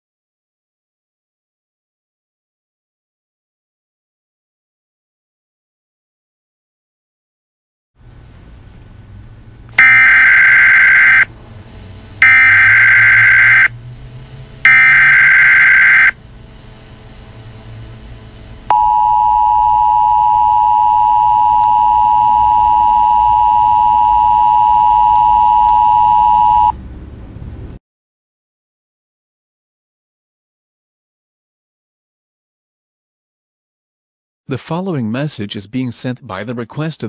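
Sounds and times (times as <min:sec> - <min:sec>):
faint low hum: 0:08.0 - 0:27.8
screeching data tones: 0:09.8 - 0:11.3, 0:12.2 - 0:13.8, 0:14.6 - 0:16.2, 0:18.7 - 0:26.8
two-tone attention signal: 0:09.8 - 0:11.3, 0:12.2 - 0:13.7, 0:14.7 - 0:16.2, 0:18.7 - 0:26.8.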